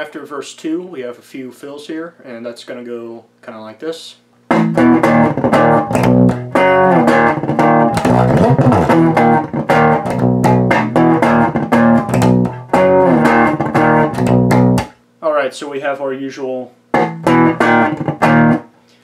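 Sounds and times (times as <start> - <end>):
electric bass playing: 4.5 - 15.0, 16.9 - 18.7.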